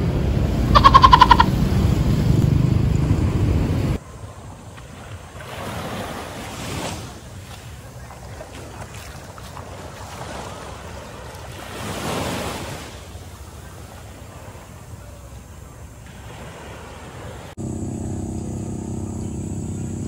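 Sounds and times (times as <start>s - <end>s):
waves washing on sandy beach: 4.0s - 17.6s.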